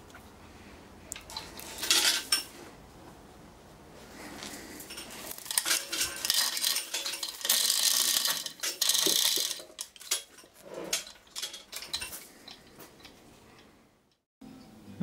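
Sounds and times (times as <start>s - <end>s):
chain hoist chain rattling: 4.9s - 13.1s.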